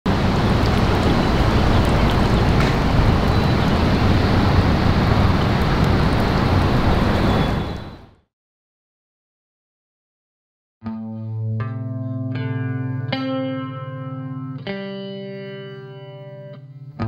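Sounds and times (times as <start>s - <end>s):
wind buffeting microphone: 0.1s - 8.0s
wind over river water: 0.1s - 8.2s.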